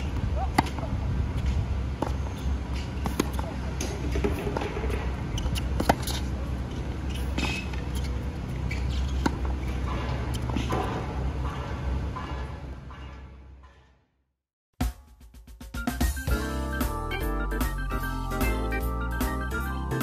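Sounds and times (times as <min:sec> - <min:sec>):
steady low rumble: 0:00.0 - 0:12.2
tennis racket hitting ball: 0:00.4 - 0:06.3
shoes squeaking on court: 0:01.4 - 0:11.2.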